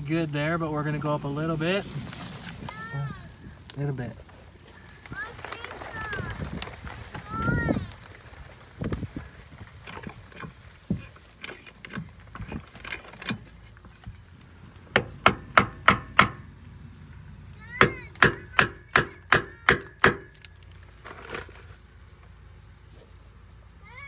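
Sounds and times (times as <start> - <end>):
hammer knocking wooden shims: 14.9 - 16.4, 17.8 - 20.4.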